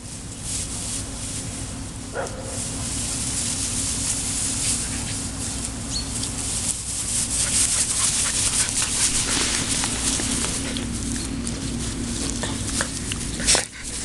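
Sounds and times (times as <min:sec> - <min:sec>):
dry grass rustling and crackling: 0:00.0 - 0:14.0
steady low hum: 0:00.0 - 0:14.0.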